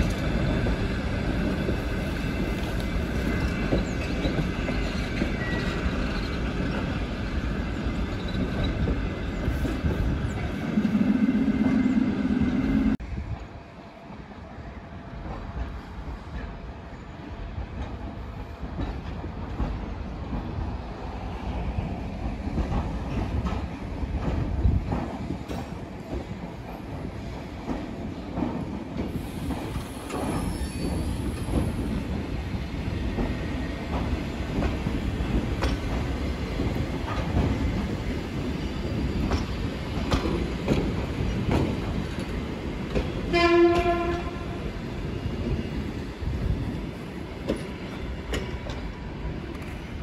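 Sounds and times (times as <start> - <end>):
electric train rumbling: 0.0 - 50.0
train horn: 43.3 - 44.6.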